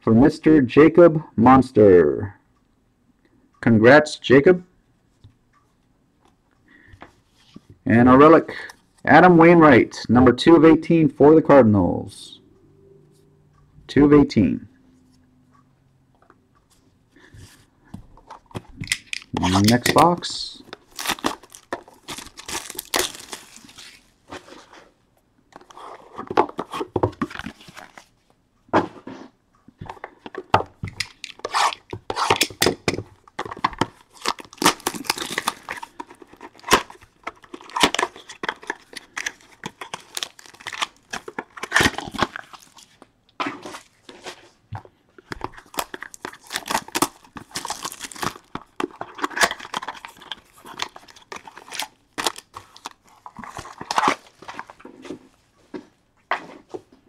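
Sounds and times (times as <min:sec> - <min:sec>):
plastic wrap tearing and crinkling: 0:20.8 - 0:24.1, 0:34.0 - 0:42.9, 0:45.5 - 0:54.3.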